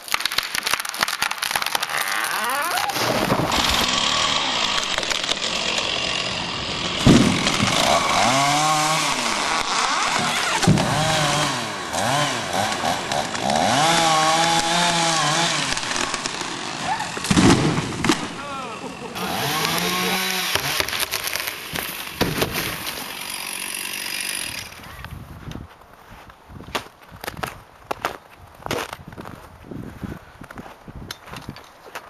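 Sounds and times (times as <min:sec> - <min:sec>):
chainsaw revving and cutting: 0:01.7 - 0:24.9.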